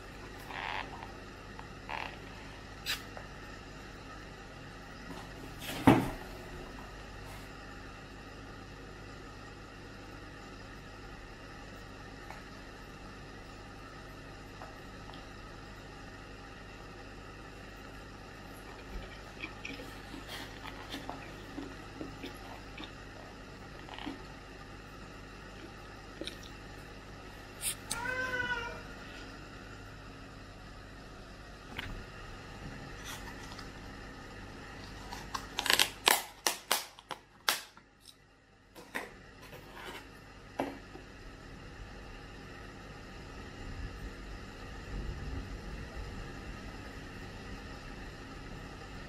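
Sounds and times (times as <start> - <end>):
low room hum: 0.0 - 49.0
chopsticks clicking and food squishing: 18.6 - 23.2, 25.6 - 26.6
plastic lid crackling and snapping: 35.1 - 37.8.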